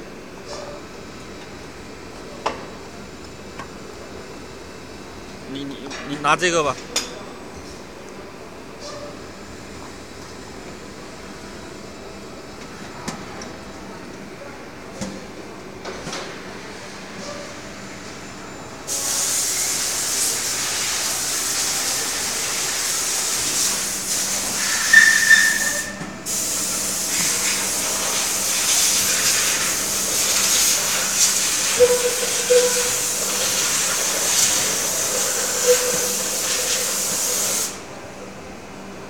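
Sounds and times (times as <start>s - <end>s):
compressed air hissing: 18.9s - 37.8s
short high squeal: 24.4s - 26.2s, 30.6s - 36.7s.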